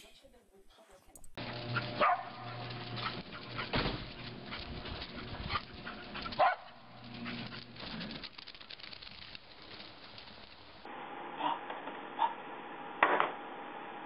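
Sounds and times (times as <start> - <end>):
dog barking: 1.4 - 3.9, 4.5 - 7.5, 11.4 - 12.4.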